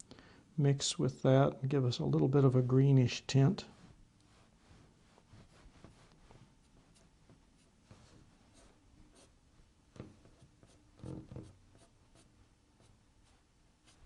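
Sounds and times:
brush scratching on paper: 3.7s - 9.3s, 10.2s - 14.0s.

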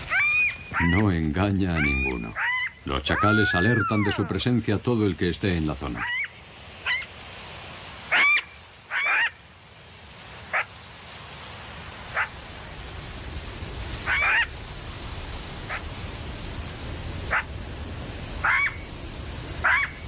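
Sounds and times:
jackals yelping: 0.0s - 1.0s, 1.8s - 4.3s, 8.1s - 9.4s, 12.1s - 12.4s, 14.0s - 14.6s, 15.6s - 15.9s, 17.2s - 17.6s, 18.4s - 18.8s, 19.6s - 20.0s
steady hiss: 0.0s - 20.0s.

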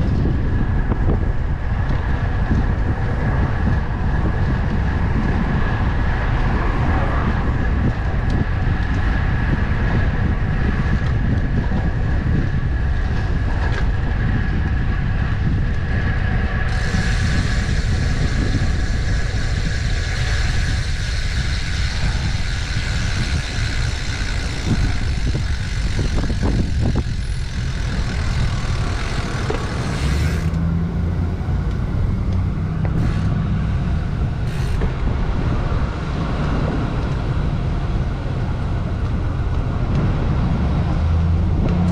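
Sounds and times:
motor traffic passing: 0.0s - 41.9s
vehicle engine hum: 0.0s - 41.9s
wind rumble on microphone: 0.0s - 41.9s
hiss: 16.7s - 22.9s.

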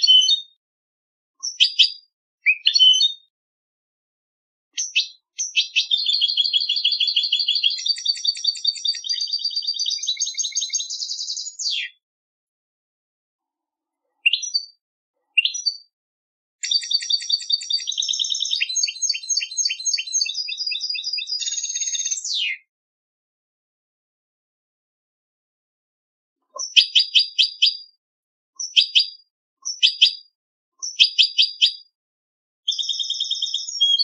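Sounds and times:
finch singing trills: 1.4s - 3.2s, 4.8s - 12.0s, 14.2s - 15.9s, 16.6s - 22.6s, 32.7s - 34.0s.

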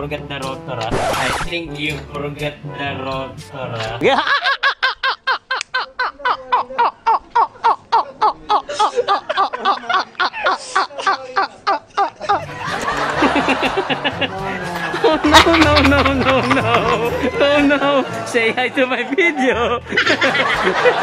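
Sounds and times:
person laughing heartily: 4.0s - 17.7s, 19.0s - 21.0s.

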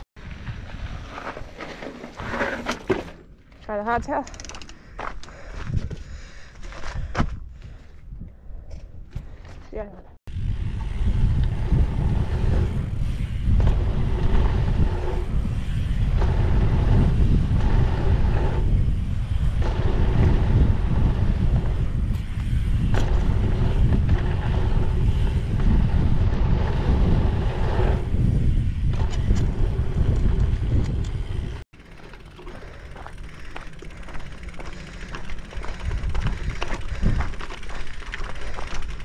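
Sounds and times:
bike tyres rolling on dirt: 0.2s - 7.9s, 10.3s - 39.0s
wind rushing over microphone: 10.3s - 31.6s, 35.3s - 37.9s.

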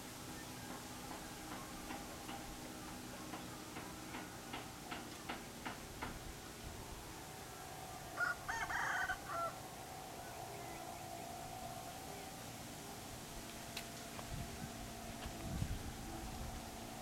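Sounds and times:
faint steady hum: 0.0s - 17.0s
rooster crowing: 8.2s - 9.6s.

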